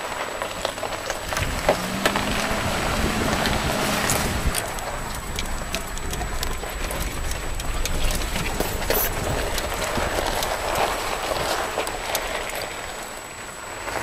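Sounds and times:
vehicle rumbling on gravel: 0.0 - 14.0
stones clicking and knocking: 3.3 - 12.8.

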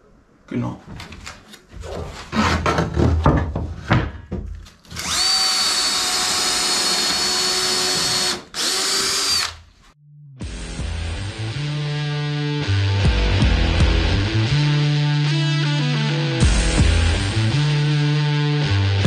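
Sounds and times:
power drill driving a screw: 4.9 - 9.6
guitar music: 10.4 - 19.0.

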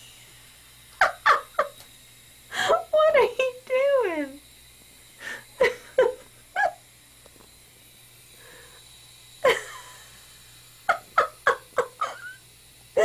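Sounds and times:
person laughing in short bursts: 5.6 - 6.8, 9.4 - 10.0, 10.9 - 12.4.

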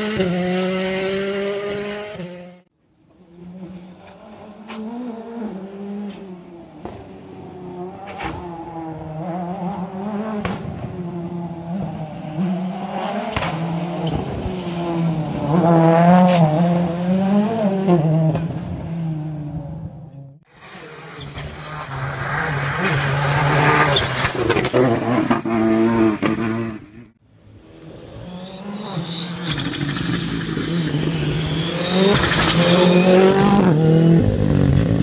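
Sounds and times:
rally car engine revving: 0.0 - 2.6, 3.2 - 35.0
engine sharp cracks: 29.2 - 33.4.

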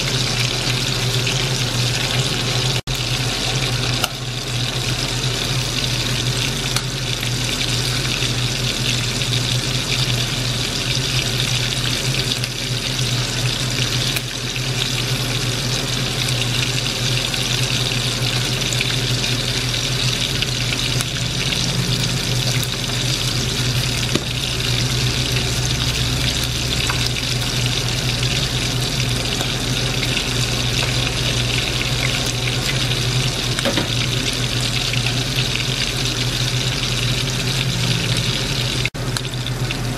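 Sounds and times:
oil sizzling while deep-frying: 0.0 - 39.9
low hum: 18.8 - 38.9.

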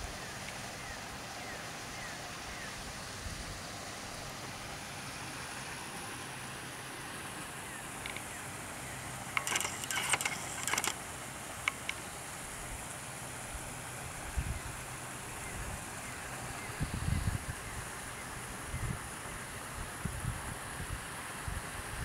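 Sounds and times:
outdoor background hiss: 0.0 - 22.0
sharp clicks: 8.0 - 8.3, 9.3 - 11.0, 11.6 - 12.0.

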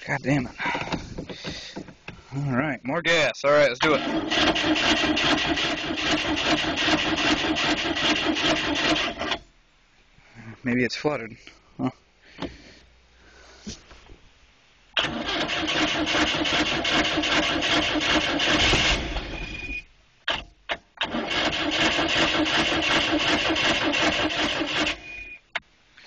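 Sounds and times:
engine starter cranking: 3.8 - 9.4, 15.0 - 25.4.

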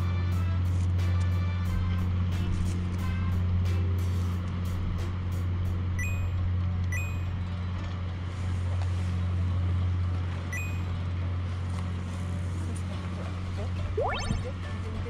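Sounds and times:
two-note electronic beeps: 6.0 - 7.3, 10.6 - 10.9, 14.0 - 14.6.

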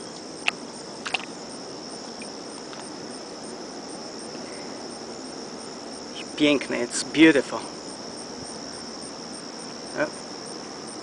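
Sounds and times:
high-pitched insect chorus trilling: 0.0 - 11.0.

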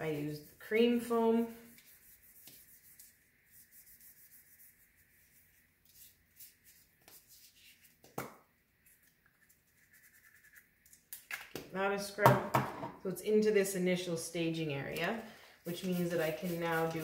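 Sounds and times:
hands rubbing in foam cleaner: 0.0 - 8.0, 15.7 - 17.0.

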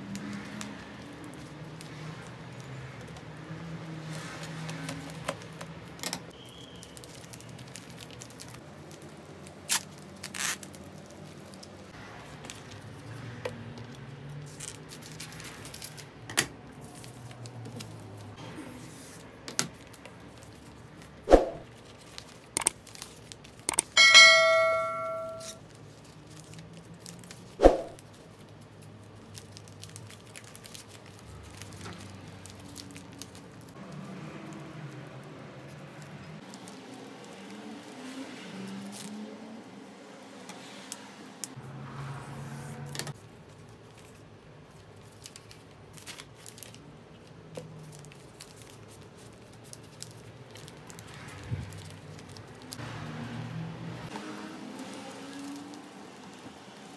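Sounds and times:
wrapping paper crinkling: 6.4 - 11.9, 18.9 - 23.7, 25.6 - 39.2, 43.2 - 52.8, 54.7 - 56.9
bell-like ding: 24.0 - 25.6.

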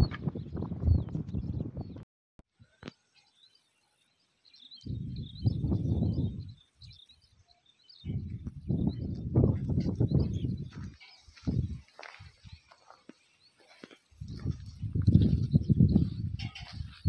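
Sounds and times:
small birds chirping: 2.6 - 17.0
low microphone rumble: 4.9 - 6.6.

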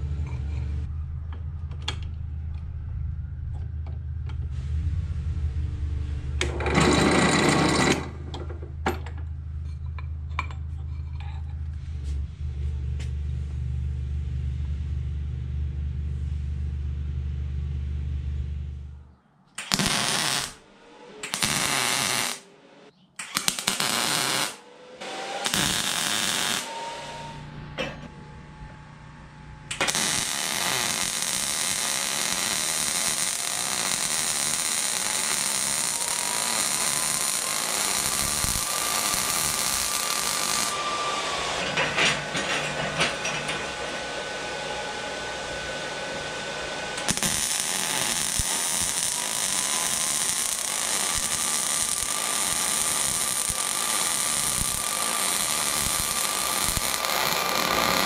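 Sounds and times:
arc welding buzz: 19.6 - 20.6, 21.2 - 22.4, 23.2 - 27.5, 29.7 - 42.4, 43.0 - 58.0.

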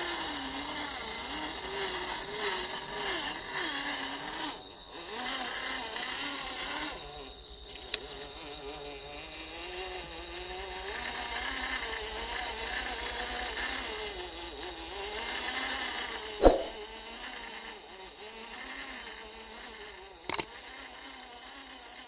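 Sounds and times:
toy car electric motor whining: 0.0 - 16.4, 17.1 - 22.0
sharp click: 16.4 - 16.8.

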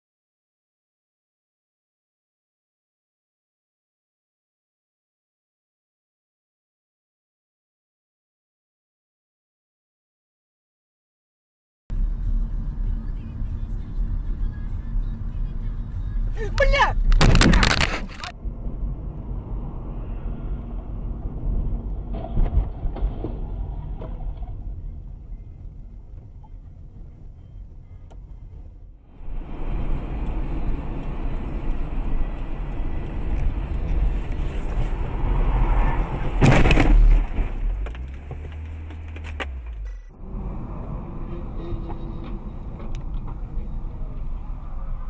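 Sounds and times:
car road and engine noise: 11.9 - 45.0
loud bang: 17.2 - 18.3, 36.2 - 37.8.

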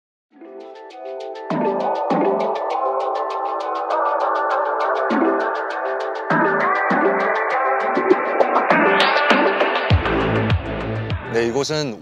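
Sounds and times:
sustained electronic chords: 0.4 - 11.4
bass line: 9.9 - 11.5.

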